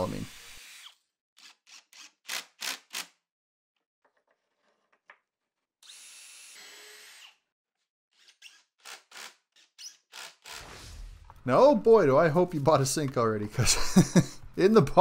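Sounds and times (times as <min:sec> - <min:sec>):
cordless drill whining: 0:00.1 - 0:02.4, 0:05.8 - 0:07.4, 0:08.1 - 0:10.6.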